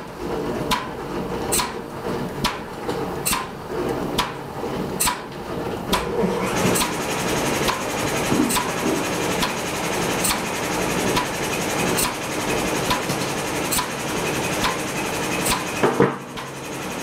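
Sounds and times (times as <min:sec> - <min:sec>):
pump running: 0:05.9 - 0:17.0
pump clicking: 0:12.9 - 0:14.0.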